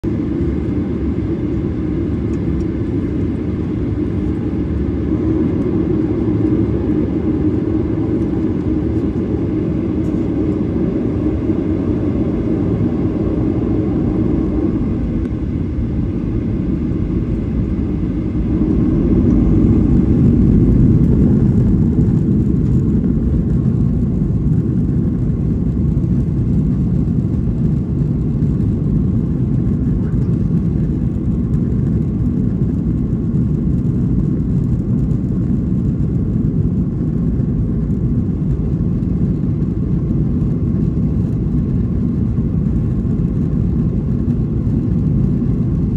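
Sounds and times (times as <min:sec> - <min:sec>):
jet engine rumble in cabin: 0:00.0 - 0:45.9.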